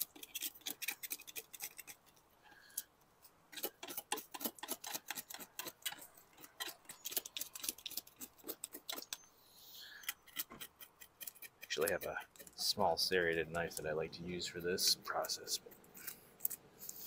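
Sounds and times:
knife scraping fish scales: 0:00.0 - 0:02.8, 0:03.5 - 0:09.2, 0:09.9 - 0:12.6, 0:14.8 - 0:17.0.

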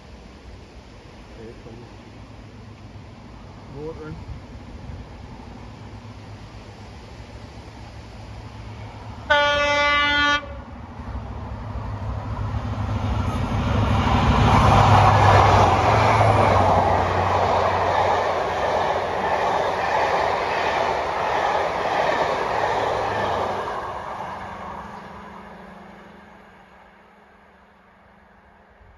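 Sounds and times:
train passing at speed: 0:00.0 - 0:28.9
train horn: 0:09.2 - 0:10.7.

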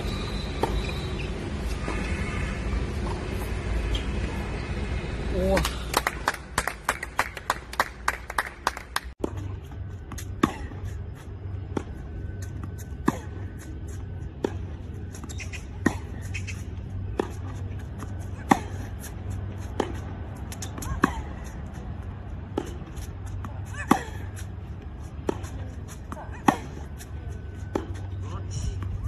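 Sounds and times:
racket hitting tennis ball: 0:14.4 - 0:21.3, 0:22.5 - 0:24.2, 0:25.2 - 0:27.0.

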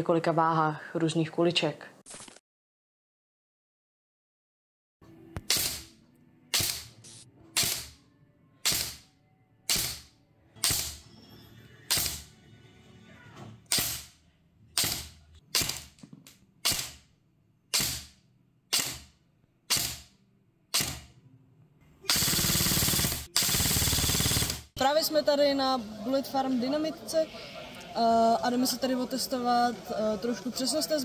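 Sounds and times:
airsoft rifle single shots: 0:05.4 - 0:05.9, 0:08.6 - 0:09.1, 0:14.8 - 0:16.0, 0:16.6 - 0:17.1, 0:17.7 - 0:19.1, 0:19.7 - 0:20.1.

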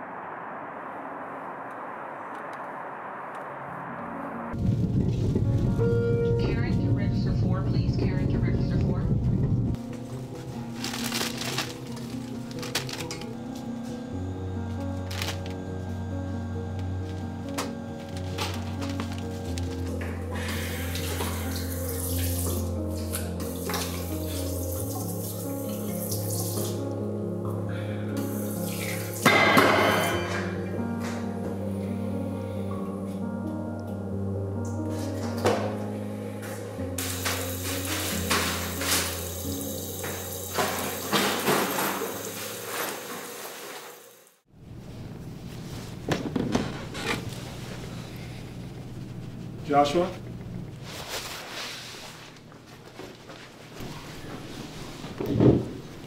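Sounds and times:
low hum: 0:00.0 - 0:09.9, 0:10.5 - 0:24.1
faucet water running into sink: 0:37.0 - 0:43.3.

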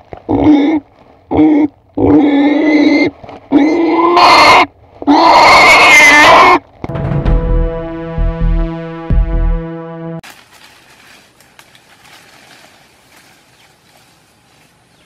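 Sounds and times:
pig squealing: 0:00.3 - 0:06.6
electronic music: 0:06.9 - 0:10.2.

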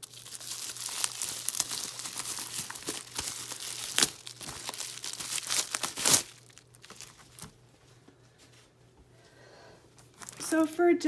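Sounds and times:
bubble wrap crinkling: 0:00.0 - 0:07.7, 0:10.0 - 0:10.7.

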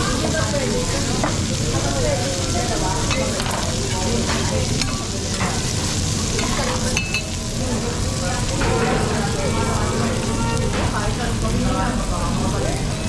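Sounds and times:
food sizzling on a griddle: 0:00.0 - 0:13.0.

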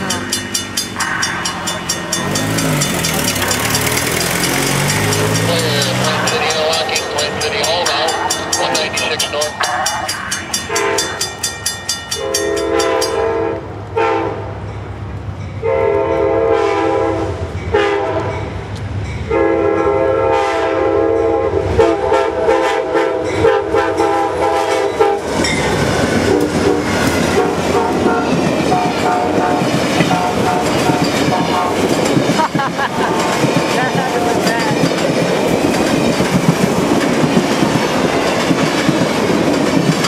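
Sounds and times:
locomotive engine noise: 0:00.0 - 0:11.6, 0:24.1 - 0:40.0
train wheels clacking on rails: 0:00.0 - 0:13.3, 0:23.3 - 0:40.0
crossing bell ringing: 0:00.0 - 0:13.4, 0:23.2 - 0:24.2, 0:24.8 - 0:39.9
locomotive horn blasts: 0:02.5 - 0:10.0, 0:10.6 - 0:11.2, 0:12.2 - 0:14.4, 0:15.6 - 0:18.3, 0:19.3 - 0:25.3, 0:26.2 - 0:31.9.

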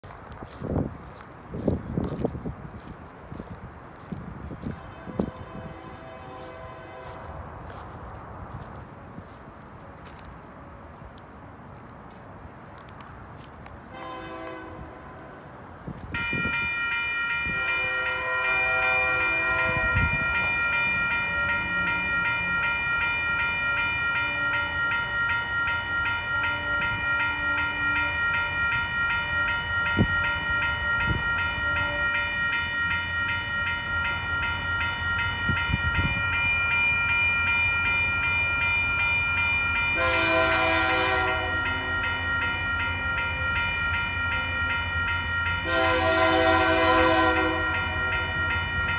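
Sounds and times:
low rumble of train: 0:00.0 - 0:48.9
crossing warning bell ringing: 0:02.0 - 0:48.9
train horn blasts: 0:04.6 - 0:07.6, 0:13.9 - 0:15.4, 0:17.4 - 0:22.2, 0:26.3 - 0:28.3, 0:29.1 - 0:32.8, 0:39.9 - 0:42.6, 0:45.6 - 0:48.5.

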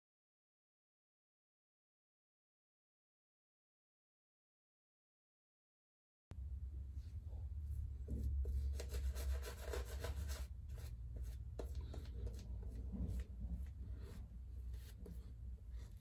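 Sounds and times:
steady low hum: 0:06.3 - 0:16.0.

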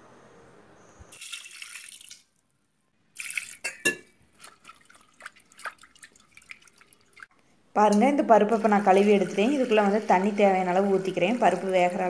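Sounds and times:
water pouring into metal pot: 0:01.1 - 0:02.3, 0:03.2 - 0:07.3, 0:08.1 - 0:12.0
water dripping: 0:01.1 - 0:02.4, 0:03.1 - 0:07.3.

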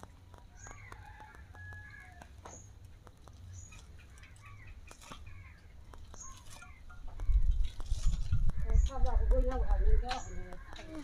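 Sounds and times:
birds chirping faintly: 0:00.0 - 0:11.0
fruit fibres pulled apart: 0:03.3 - 0:06.8, 0:07.4 - 0:08.5.

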